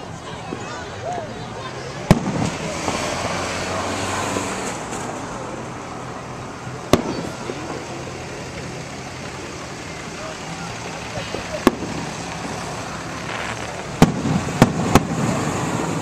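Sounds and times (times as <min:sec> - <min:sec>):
firework crackle: 0:02.0 - 0:03.5, 0:06.8 - 0:16.0
firework bangs: 0:02.0 - 0:05.1, 0:06.8 - 0:08.0, 0:10.8 - 0:16.0.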